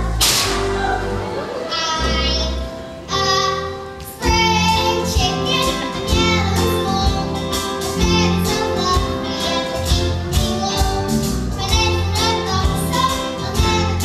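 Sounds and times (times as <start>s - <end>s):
steady bass line: 0.0s - 2.7s
instrumental accompaniment: 0.0s - 14.0s
child singing: 1.7s - 14.0s.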